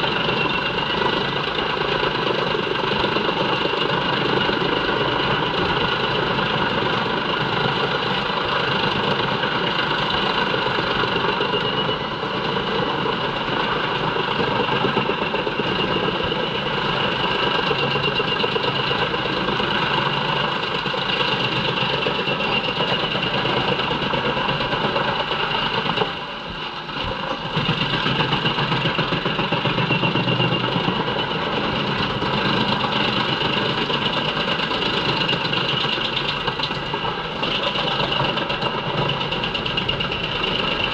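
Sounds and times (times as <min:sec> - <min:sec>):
wood chipper droning with whine: 0:00.0 - 0:40.9.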